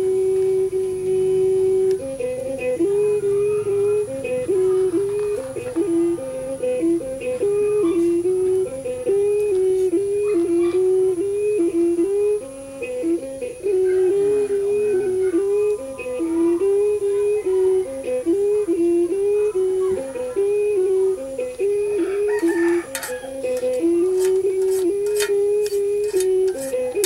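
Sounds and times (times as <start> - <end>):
single melody line: 0.0 - 27.0
clinks: 22.7 - 27.0.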